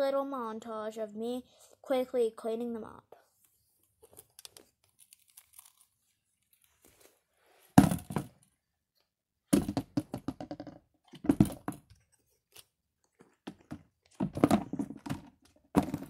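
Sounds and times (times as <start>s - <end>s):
toys clattering into plastic bin: 14.2s - 16.0s.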